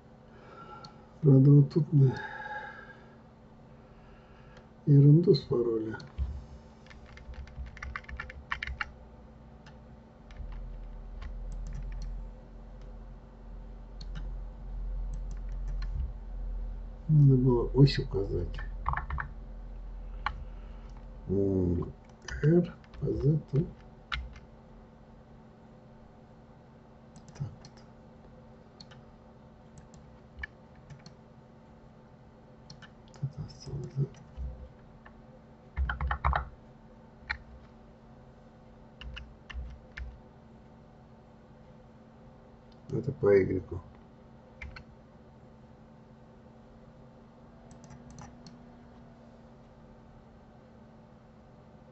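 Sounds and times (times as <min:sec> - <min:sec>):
low steady hum: 0:00.0 - 0:51.9
keyboard and mouse clicks: 0:06.0 - 0:08.9, 0:09.6 - 0:12.2, 0:14.0 - 0:14.3, 0:15.1 - 0:16.1, 0:18.5 - 0:19.3, 0:20.2 - 0:21.1, 0:22.0 - 0:24.4, 0:27.1 - 0:27.9, 0:28.8 - 0:29.0, 0:29.8 - 0:31.2, 0:32.7 - 0:35.2, 0:35.8 - 0:36.5, 0:37.3 - 0:37.7, 0:39.0 - 0:40.2, 0:44.6 - 0:44.9, 0:47.7 - 0:48.6.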